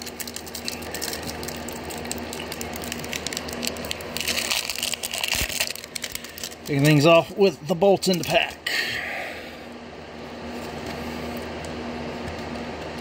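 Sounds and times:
foil pack crinkling and tearing: 0.0 - 8.6.

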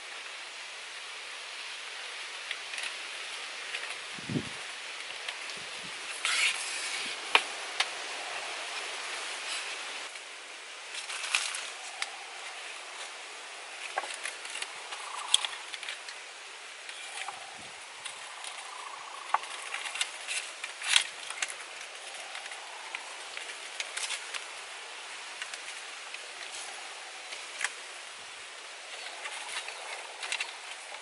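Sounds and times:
leaves rustling: 0.0 - 31.0
steady background hiss: 0.0 - 31.0
bamboo poles clicking and knocking: 5.0 - 8.0, 10.9 - 27.9, 28.9 - 31.0.

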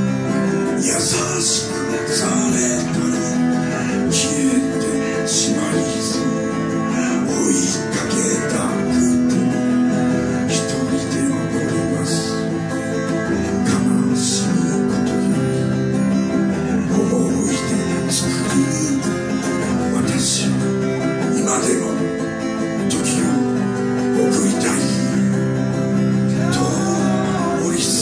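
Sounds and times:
acoustic guitars strumming: 0.0 - 28.0
sustained melody notes: 25.4 - 28.0.

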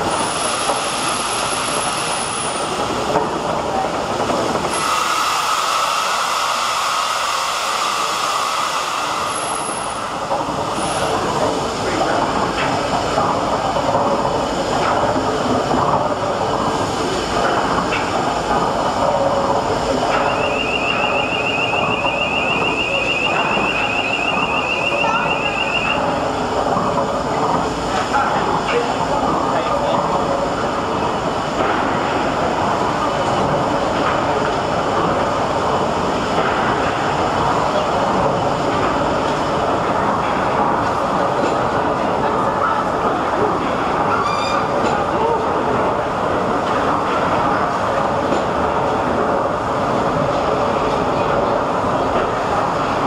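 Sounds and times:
steam pumping engine running: 0.0 - 53.0
warbling high tone: 20.2 - 26.2.

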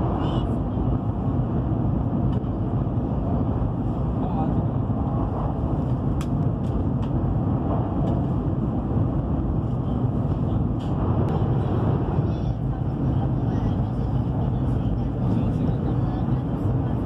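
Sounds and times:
train rumbling at speed: 0.0 - 17.0.

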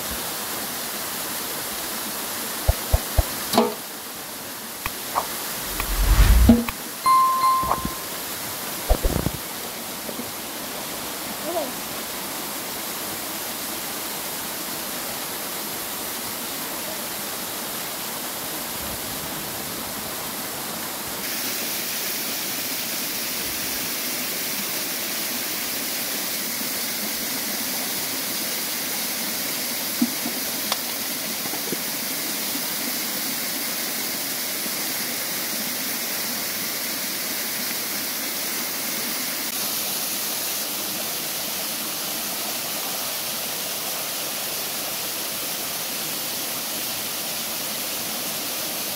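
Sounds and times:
running water rushing: 1.1 - 8.0.

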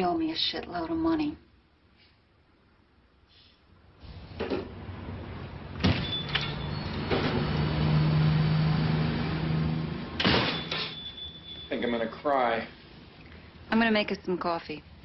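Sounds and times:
brief high ring: 10.5 - 12.0.

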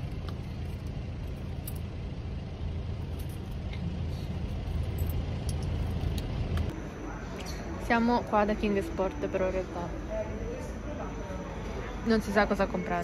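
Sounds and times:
car engine rumble from cabin: 0.0 - 7.4.

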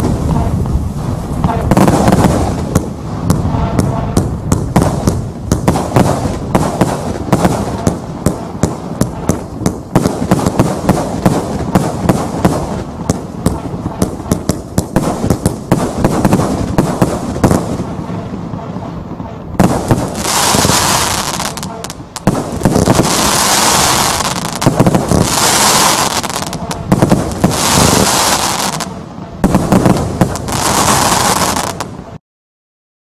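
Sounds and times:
firework bangs and pops: 0.0 - 32.0
firework crackling: 0.0 - 32.2
firework hissing: 19.6 - 31.9.

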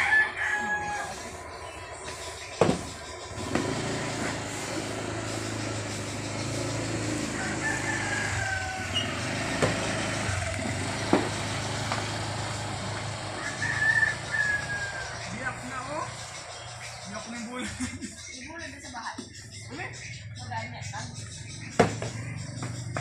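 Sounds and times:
rooster crowing: 0.0 - 1.4, 7.2 - 9.6, 13.3 - 15.4.

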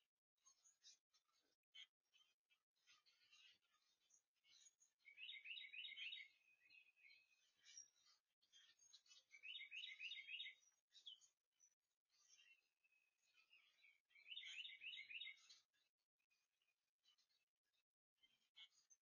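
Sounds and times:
songbird singing faintly: 4.5 - 15.8
faint bird calls: 5.0 - 11.2, 13.4 - 15.7.

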